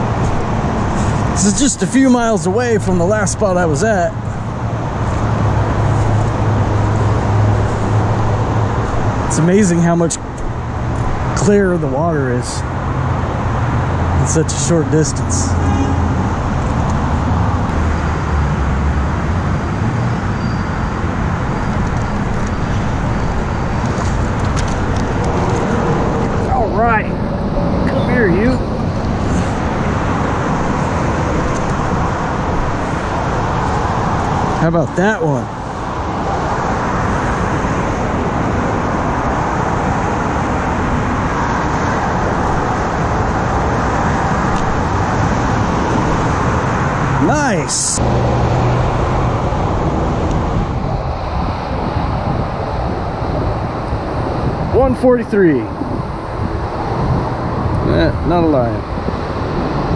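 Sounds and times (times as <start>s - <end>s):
road traffic rumble: 0.0s - 59.9s.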